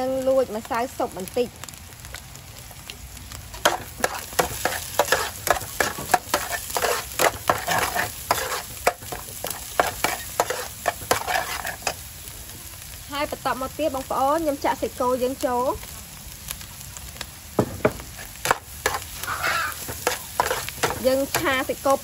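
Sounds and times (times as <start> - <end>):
frying oil sizzling: 0.0 - 22.0
metal spatula scraping wok: 3.6 - 12.0, 17.9 - 21.9.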